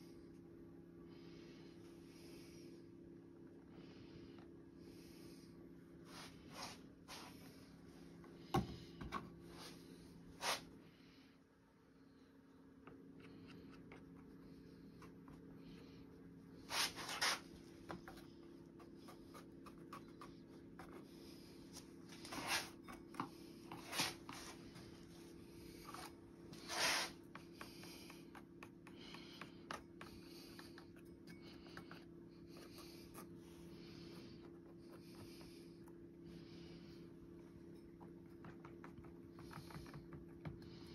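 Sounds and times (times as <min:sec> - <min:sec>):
steady low hum: 0:00.0 - 0:40.9
wooden stick scraping resin: 0:22.1 - 0:23.1, 0:25.8 - 0:33.5.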